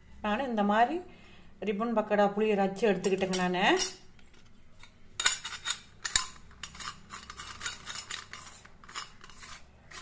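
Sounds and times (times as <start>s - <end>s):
metal parts clinking and scraping: 3.8s - 10.0s.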